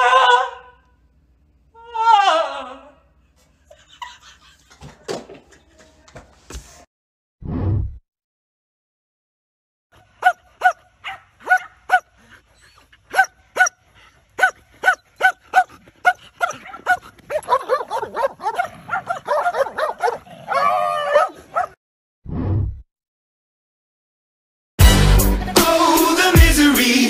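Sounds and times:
dog barking: 10.2s - 12.2s, 13.1s - 13.8s, 14.4s - 21.8s
dog wavering cry: 19.2s - 21.7s.

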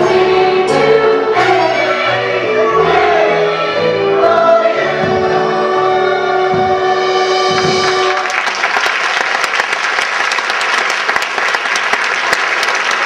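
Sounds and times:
chorus and orchestra held chord: 0.0s - 8.4s
audience applause: 7.6s - 13.0s.

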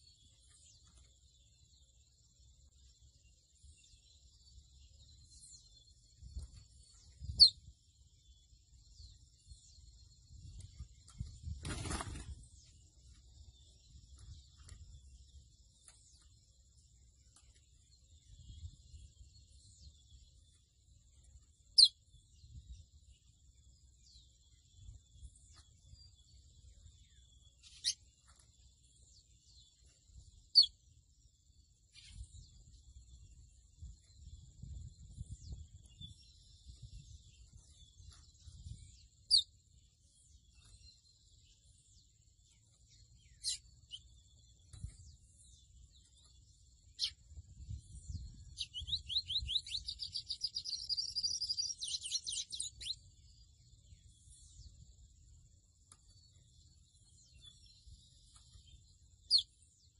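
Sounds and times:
bird singing high chirps: 0.0s - 59.9s
bird singing whistled trill: 43.0s - 54.8s.

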